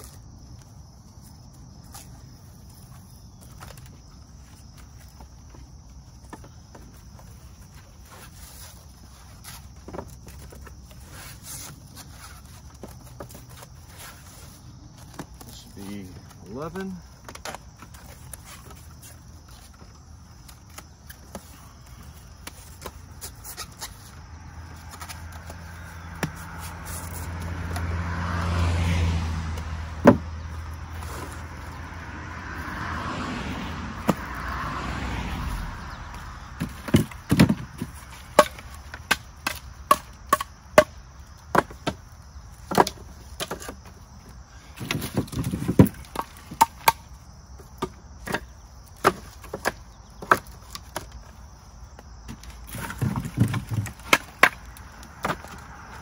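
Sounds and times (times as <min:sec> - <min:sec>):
vehicle passing: 0:24.2 - 0:38.2, 0:53.8 - 0:56.0
firewood knocking and clattering: 0:44.8 - 0:47.0.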